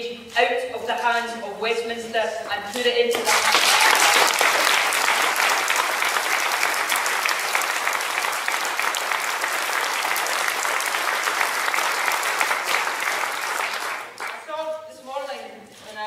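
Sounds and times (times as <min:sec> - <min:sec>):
audience applauding: 0:03.2 - 0:14.4.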